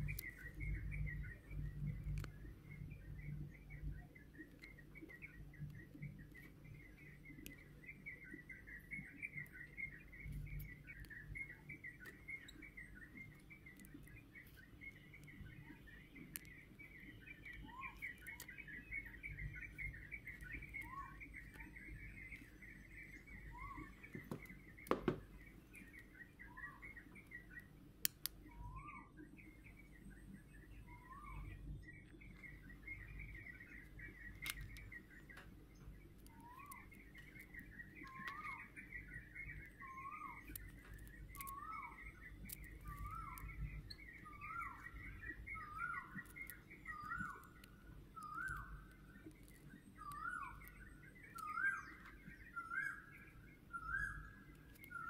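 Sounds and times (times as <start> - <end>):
birds chirping: 0.0 - 55.0
light clicks: 1.8 - 2.4, 27.2 - 28.5, 34.2 - 38.6, 39.6 - 52.9
sharp tap: 24.2 - 25.3.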